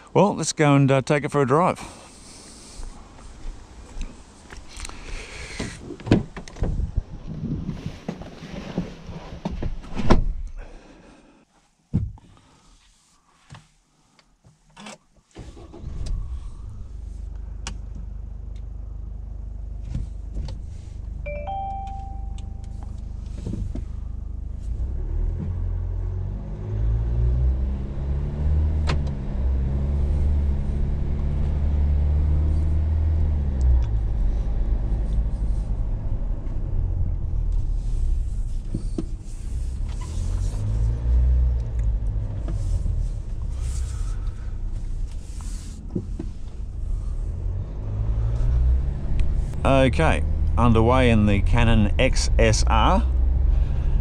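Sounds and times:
diesel engine starting and running: 1.4s - 8.6s, 15.3s - 54.0s
electronic dashboard chimes: 21.3s - 22.8s.

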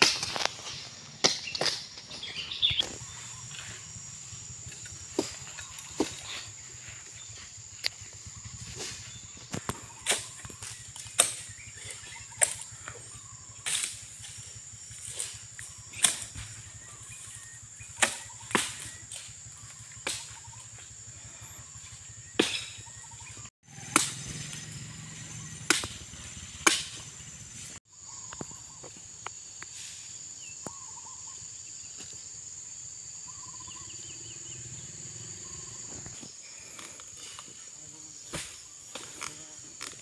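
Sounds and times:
axe chopping: 0.0s - 2.1s, 8.8s - 12.6s, 18.0s - 19.3s, 22.4s - 22.8s, 23.8s - 24.4s, 25.6s - 27.1s
high insect drone: 0.0s - 40.0s.

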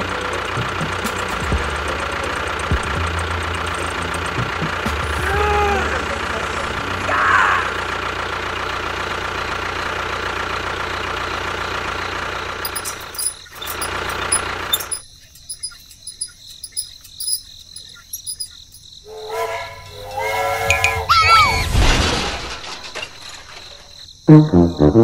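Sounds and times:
small motor running: 10.8s - 16.9s.

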